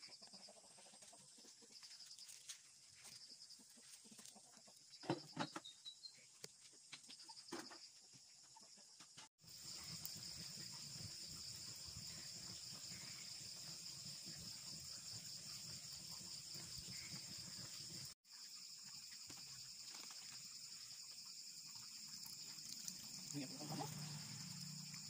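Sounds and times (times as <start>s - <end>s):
pot of water boiling: 9.4s - 18.2s, 21.6s - 25.0s
crickets chirring: 9.4s - 25.0s.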